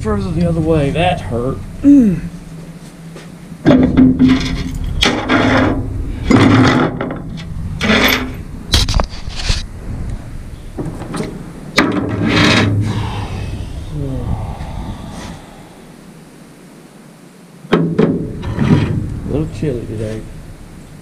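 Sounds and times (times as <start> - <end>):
metal scraping on metal: 4.2 - 8.4, 12.1 - 12.8.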